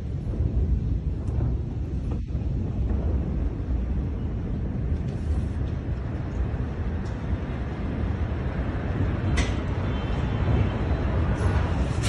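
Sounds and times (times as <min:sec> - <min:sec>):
low rumble after explosion: 0:00.0 - 0:09.6.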